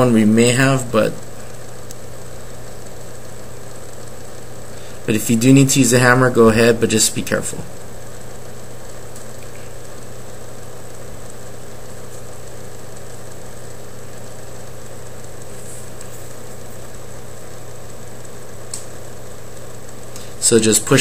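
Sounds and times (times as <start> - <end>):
steady low hum: 0.0 - 21.0
even hiss: 11.7 - 21.0.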